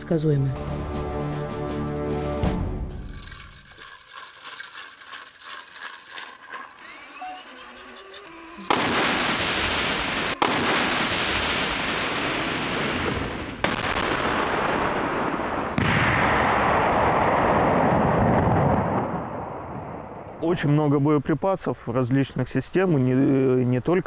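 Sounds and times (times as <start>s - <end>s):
explosions with rumble: 8.7s - 20.3s.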